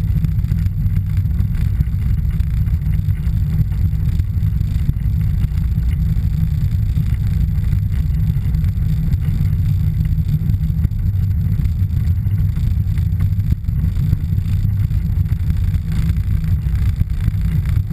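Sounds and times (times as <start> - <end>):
aircraft engine and propeller rumble: 0.0 - 17.9.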